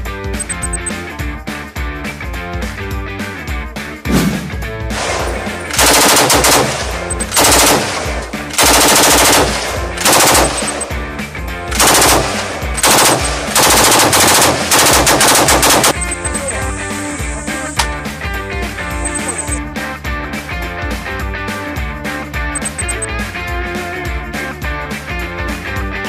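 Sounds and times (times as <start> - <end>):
rock music: 0.0 - 26.0
machine gun firing bursts: 5.0 - 11.0, 11.7 - 16.6.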